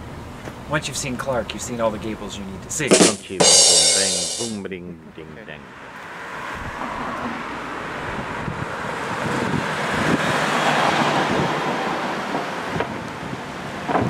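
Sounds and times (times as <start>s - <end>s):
car passing close by: 5.7s - 13.4s
wind buffeting microphone: 8.0s - 14.0s.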